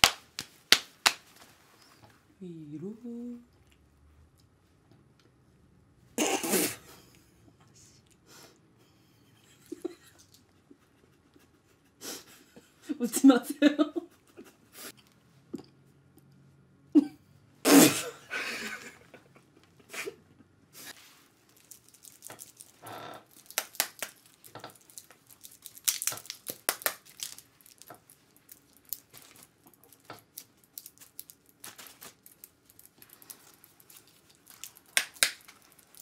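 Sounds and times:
plastic cape crinkling: 0:21.0 - 0:36.0.

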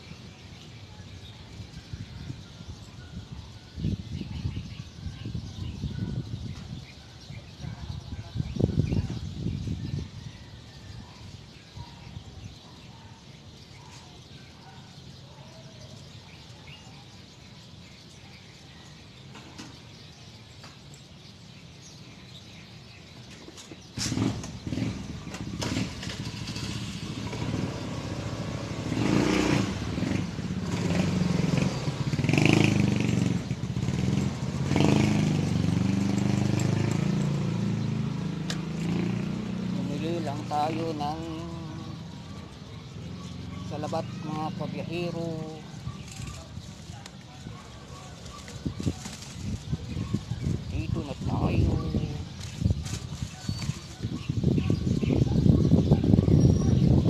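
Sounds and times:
motorcycle engine starting and running: 0:23.7 - 0:46.6.

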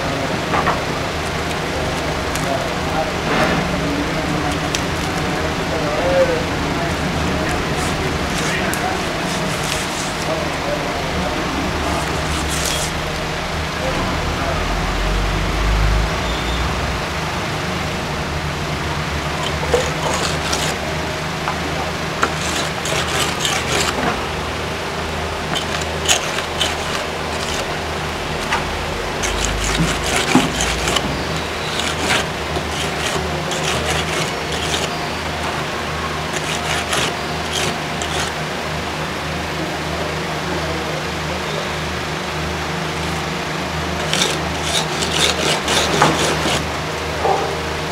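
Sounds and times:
background hum and hiss: 0:00.0 - 0:47.9
tools scraping and clicking: 0:00.5 - 0:05.4, 0:07.4 - 0:10.6, 0:11.8 - 0:13.2, 0:19.3 - 0:20.8, 0:22.2 - 0:24.3, 0:25.4 - 0:38.4, 0:44.0 - 0:47.5.

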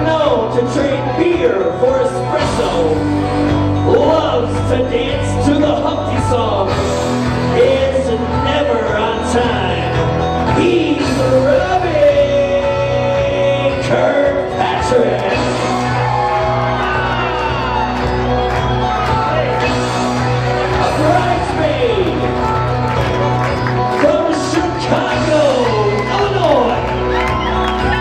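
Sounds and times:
song with singer and bass line: 0:00.0 - 0:28.0.

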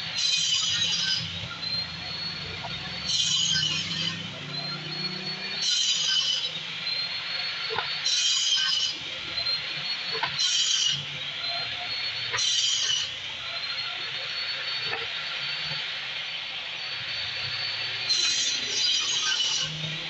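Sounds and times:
table saw whining: 0:00.0 - 0:20.0
saw cutting chipboard: 0:00.2 - 0:01.8, 0:03.0 - 0:06.6, 0:10.2 - 0:11.0, 0:12.4 - 0:13.1, 0:18.0 - 0:20.0.

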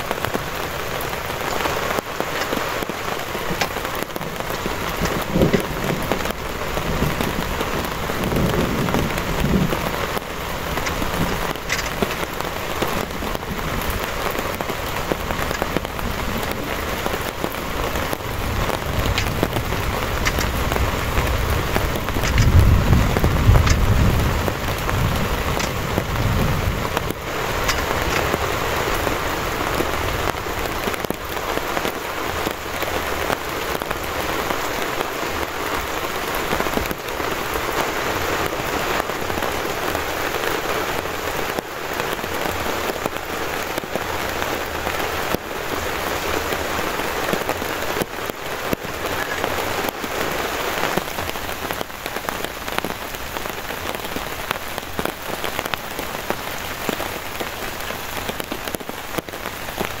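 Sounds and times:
heavy rain on a tarp: 0:00.0 - 1:00.0.

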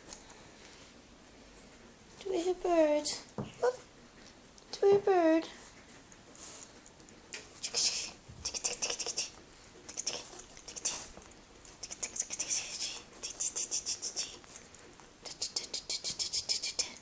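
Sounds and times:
cat scratching a rug: 0:05.5 - 0:16.5.

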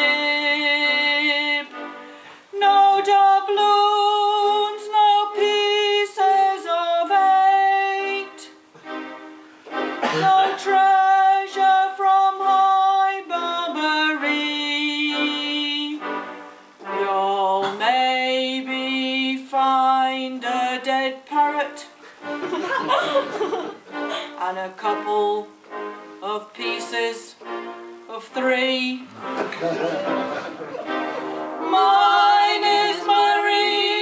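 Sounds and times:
woman singing slow melody: 0:00.0 - 0:01.9, 0:02.5 - 0:08.6, 0:10.0 - 0:16.2, 0:16.8 - 0:22.0, 0:24.1 - 0:25.5, 0:26.2 - 0:27.4, 0:28.1 - 0:29.1, 0:31.6 - 0:34.0.

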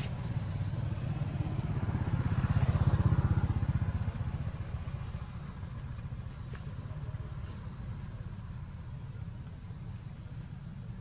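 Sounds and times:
vehicle engine passing by: 0:00.0 - 0:08.0.

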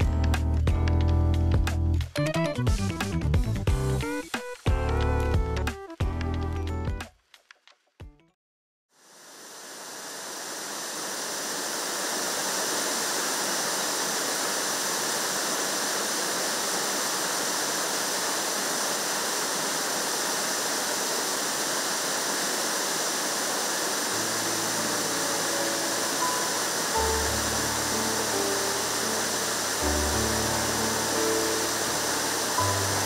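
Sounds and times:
soft music: 0:00.0 - 0:07.2, 0:24.2 - 0:33.0
waterfall rushing: 0:09.5 - 0:33.0.

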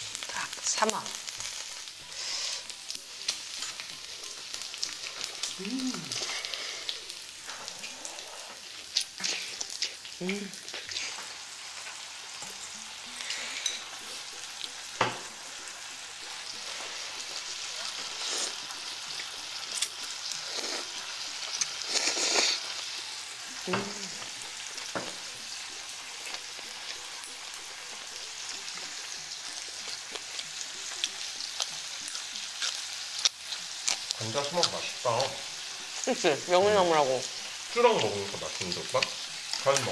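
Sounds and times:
food sizzling on a grill plate: 0:00.0 - 0:39.9
eating sounds: 0:02.0 - 0:11.4, 0:16.5 - 0:22.8.

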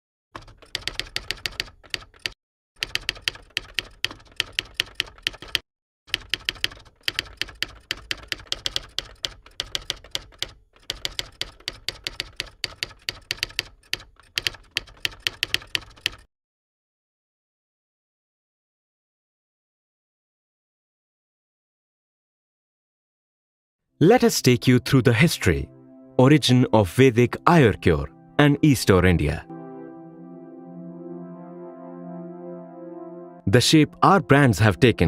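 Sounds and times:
keyboard typing clicks: 0:00.4 - 0:16.3.

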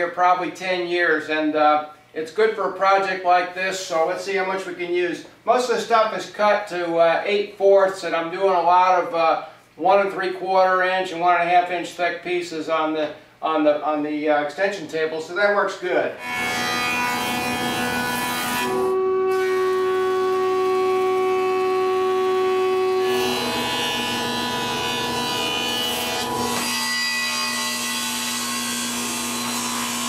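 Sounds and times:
table saw cutting wood: 0:16.2 - 0:30.0
thickness planer cutting wood: 0:16.2 - 0:30.0.

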